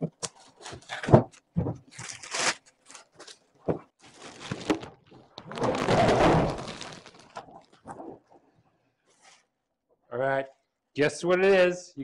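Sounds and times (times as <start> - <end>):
plastic bag crinkling: 4.0 - 7.9.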